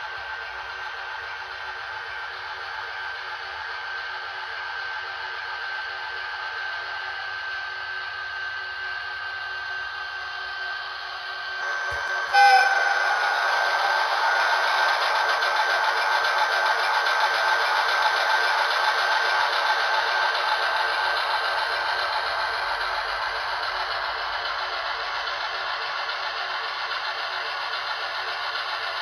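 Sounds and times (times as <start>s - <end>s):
model train motor whine: 0.0s - 29.0s.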